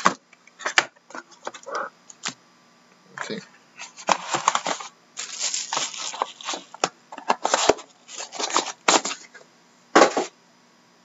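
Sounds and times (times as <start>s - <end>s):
cardboard box and foil pack rustling: 3.8s - 9.3s.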